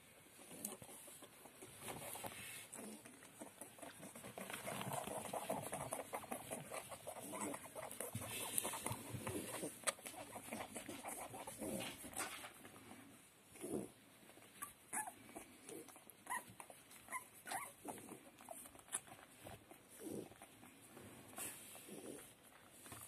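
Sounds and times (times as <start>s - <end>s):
puppy grunting: 2.7s - 12.3s
puppy squeaking and whimpering: 14.5s - 15.2s, 16.2s - 19.1s.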